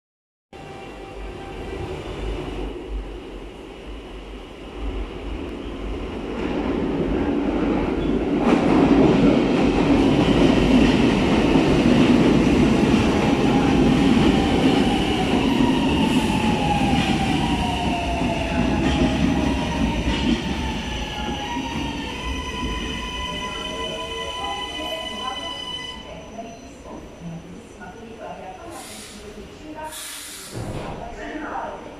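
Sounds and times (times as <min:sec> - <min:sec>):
train wheels rumbling on rail: 0:04.8 - 0:25.2.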